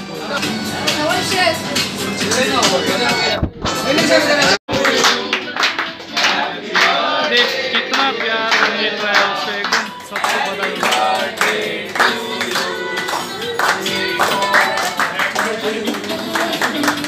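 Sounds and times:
singing with music: 0:00.0 - 0:17.0
hands clapping: 0:04.7 - 0:17.0.

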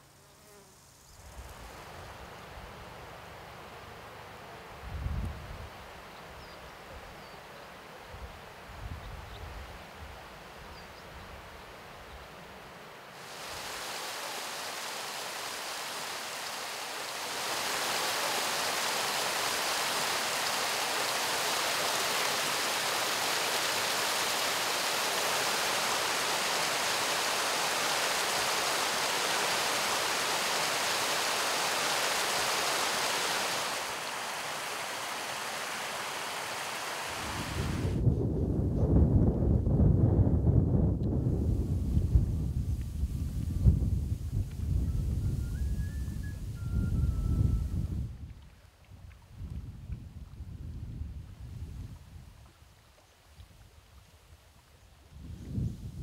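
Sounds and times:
stream rushing over rocks: 0:13.0 - 0:38.0.

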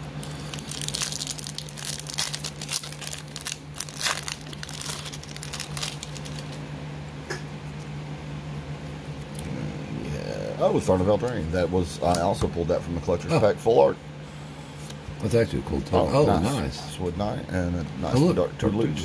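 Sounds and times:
foil wrapper crinkling: 0:00.0 - 0:06.6
steady low hum: 0:00.0 - 0:19.0.

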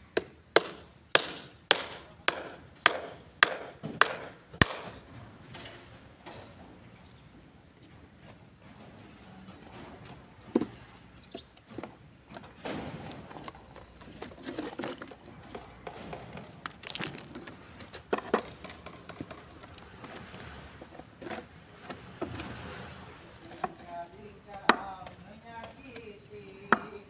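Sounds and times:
wooden boards knocking and scraping: 0:09.6 - 0:11.0, 0:11.6 - 0:26.0.

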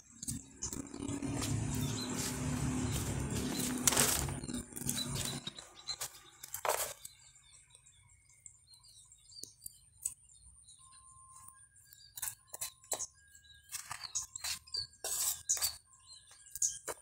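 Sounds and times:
faint bird chirps: 0:04.4 - 0:17.0
hands scraping sand and rocks: 0:13.7 - 0:15.8.

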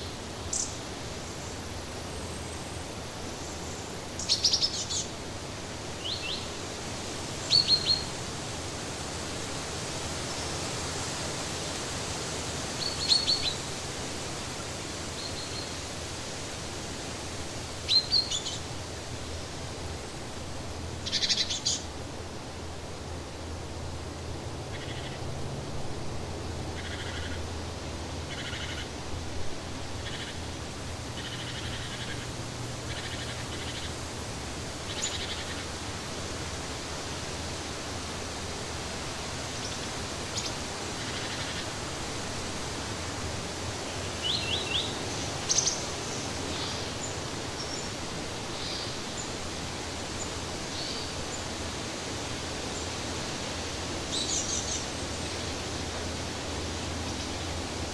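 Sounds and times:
steady outdoor hiss: 0:00.0 - 0:57.9.

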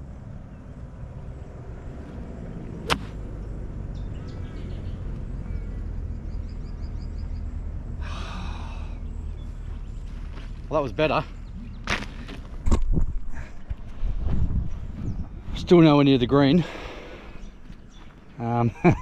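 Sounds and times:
golf club striking ball: 0:02.8 - 0:03.2
low wind rumble on microphone: 0:11.3 - 0:19.0.

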